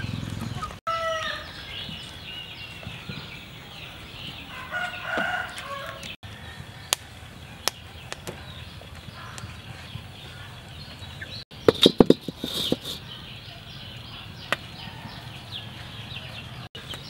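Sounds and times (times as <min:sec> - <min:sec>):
chickens clucking: 0:00.0 - 0:01.5, 0:11.2 - 0:13.2.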